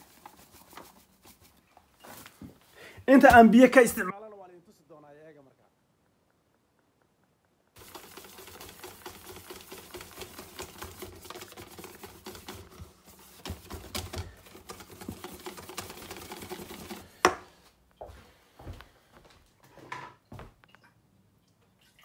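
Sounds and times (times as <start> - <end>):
whisk clicking and scraping in metal bowl: 7.8 - 17.3.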